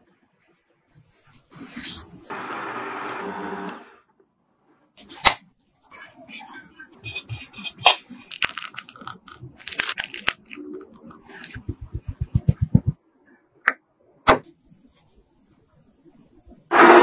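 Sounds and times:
spatula scraping frosting: 5.9 - 8.8
cream squeezed from piping bag: 8.2 - 12.0
soft low thumps: 11.6 - 13.0.

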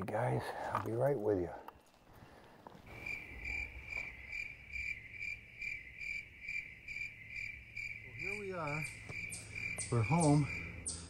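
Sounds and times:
insect chirping: 1.7 - 11.0.

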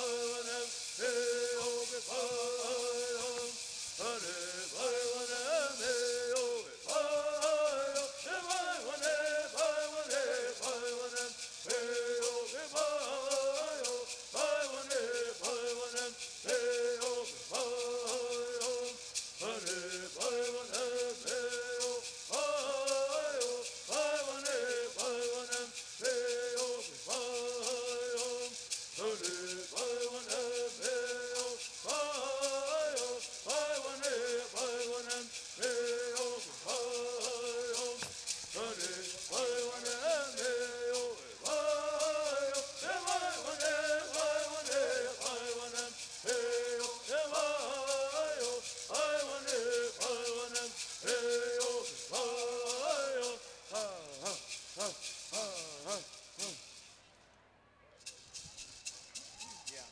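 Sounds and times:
men singing together: 0.0 - 56.6
gourd rattles shaking: 0.0 - 56.9, 58.0 - 59.9.

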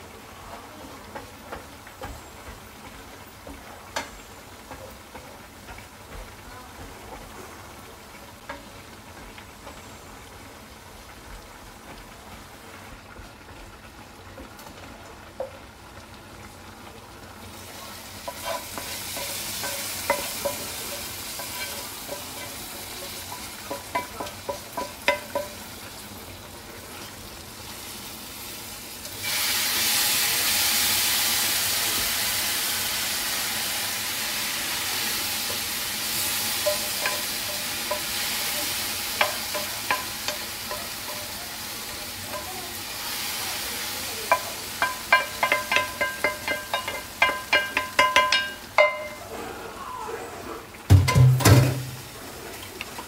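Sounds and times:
loud sizzle: 0.0 - 49.6, 50.6 - 53.0
wooden spoon scraping frying pan: 18.0 - 25.7, 44.3 - 49.5.

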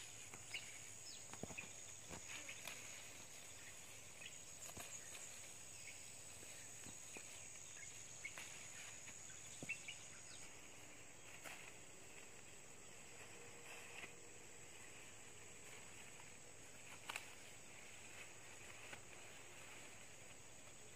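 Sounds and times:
plant stems picked by hand: 0.0 - 9.9, 15.4 - 20.9
insect chirps: 0.0 - 20.9
insect drone: 0.0 - 20.9.

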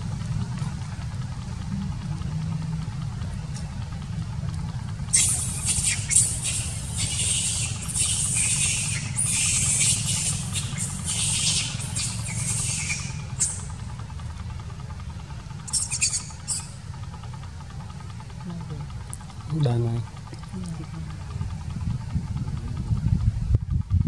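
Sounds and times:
steady low rumble: 0.0 - 24.0
monkeys shrieking: 5.1 - 14.0, 15.6 - 16.9.

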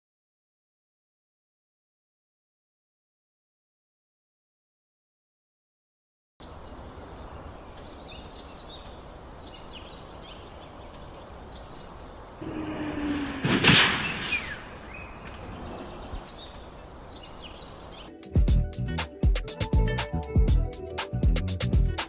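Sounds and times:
road noise: 6.4 - 18.1
small birds chirping: 6.4 - 19.6.

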